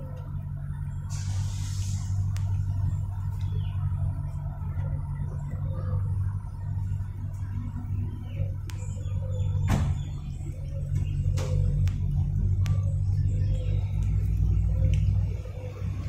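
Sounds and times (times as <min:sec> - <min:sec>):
low motor rumble: 0:00.0 - 0:16.0
brief hiss: 0:01.1 - 0:02.4.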